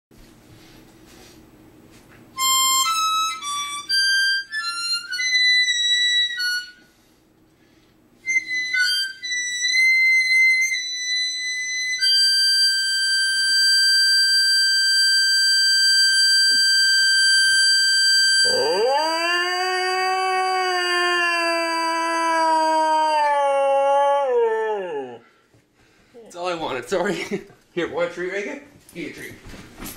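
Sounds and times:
harmonica notes: 2.4 - 7.0, 8.2 - 19.7
dog howling: 18.4 - 25.3.

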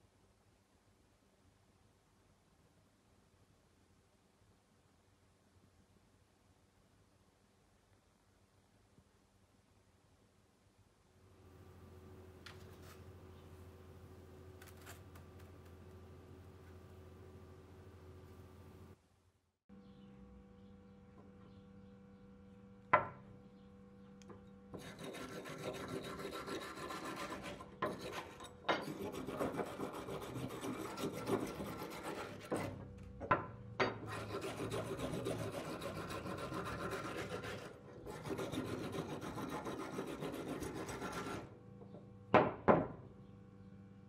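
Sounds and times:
file scraping metal: 24.8 - 32.9, 33.9 - 41.6.

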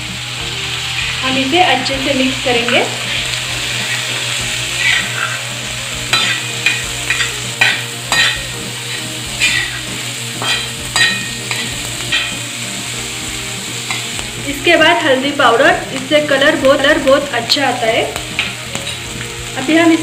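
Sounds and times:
vegetables sizzling: 0.0 - 20.0
metal spatula scraping pan: 0.9 - 14.3, 18.4 - 19.2.

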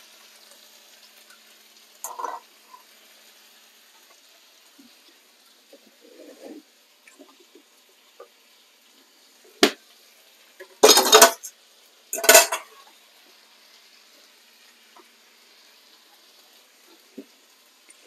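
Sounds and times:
metal kitchenware clattering: 2.0 - 2.8, 10.8 - 11.5, 12.2 - 12.8.

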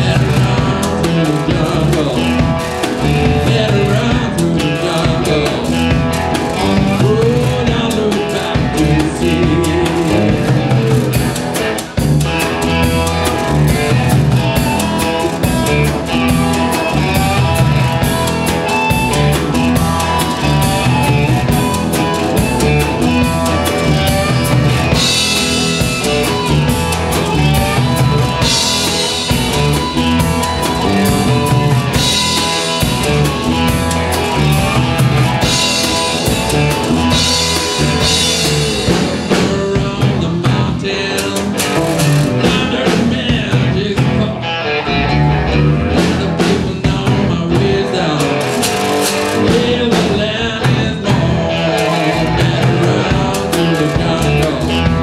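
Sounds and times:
harmonica through microphone: 0.0 - 40.1
drum kit: 0.0 - 44.4, 45.0 - 55.0
electric guitars: 0.0 - 55.0.

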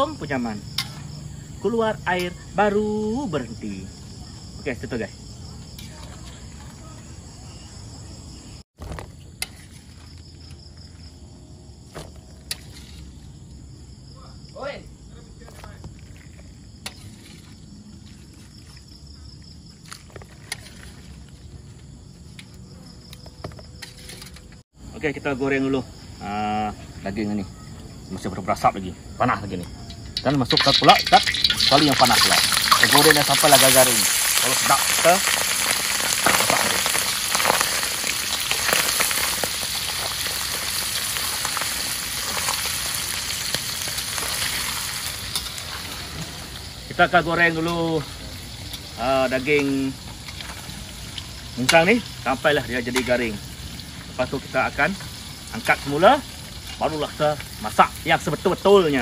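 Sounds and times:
insects chorus: 0.0 - 59.0
meat sizzling in hot oil: 29.9 - 59.0.

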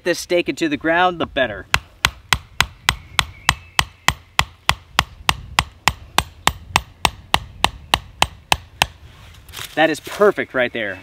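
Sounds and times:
hatchet knocking wooden stake: 1.7 - 9.0.

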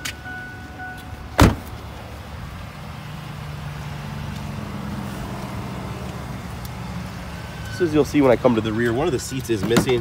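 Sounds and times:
van door slamming: 1.4 - 1.8.

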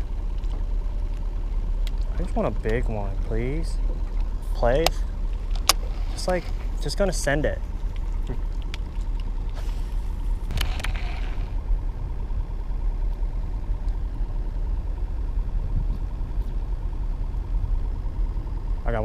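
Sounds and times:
wind buffeting microphone: 3.8 - 18.2.

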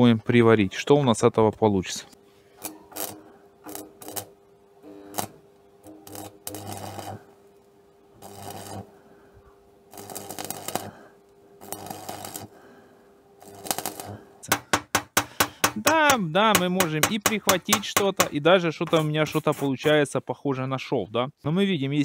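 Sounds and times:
faint steady hum: 0.0 - 22.0
welding arc crackling: 2.5 - 9.0, 9.9 - 12.7, 13.4 - 19.5.

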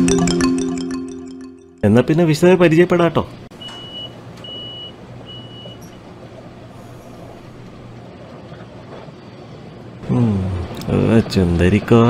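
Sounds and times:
railcar humming: 3.3 - 12.0
train door warning beeps: 3.5 - 6.1.

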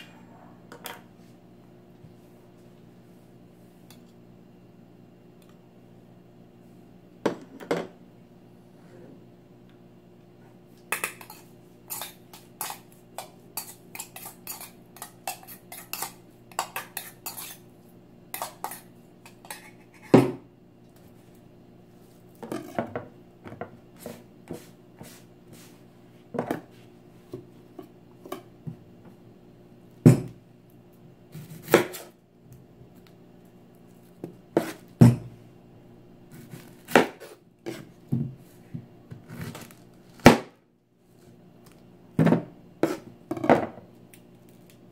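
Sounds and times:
faint low hum: 0.0 - 11.7
metal spoon scraping steel bowl: 11.0 - 17.6, 18.4 - 20.1.

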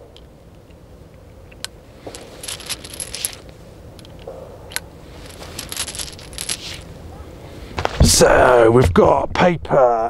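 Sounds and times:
cartridges clinking: 1.5 - 6.9.

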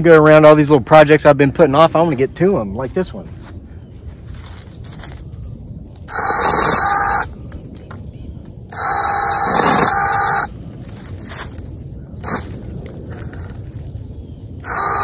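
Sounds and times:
battery chainsaw cutting limbs: 6.1 - 7.3, 8.8 - 10.5, 14.6 - 15.0.

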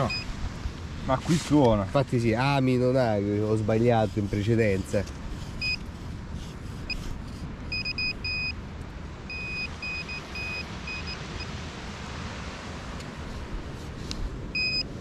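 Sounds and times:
metal detector beeping: 0.0 - 0.3, 5.6 - 5.8, 7.7 - 8.6, 9.3 - 11.5, 14.5 - 14.9.

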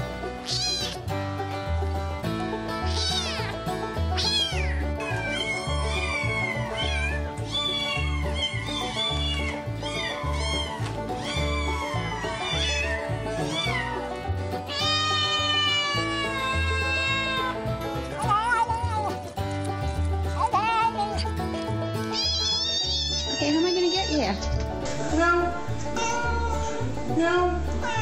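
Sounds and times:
kittens and cat meowing: 0.3 - 1.0, 2.8 - 17.6, 18.2 - 19.2, 22.0 - 28.0.

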